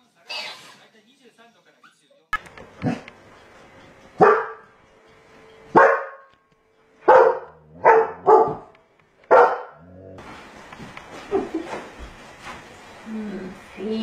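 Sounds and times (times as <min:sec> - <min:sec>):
dog barking: 0:04.2 - 0:04.8, 0:05.7 - 0:06.4, 0:07.0 - 0:08.7, 0:09.3 - 0:10.0.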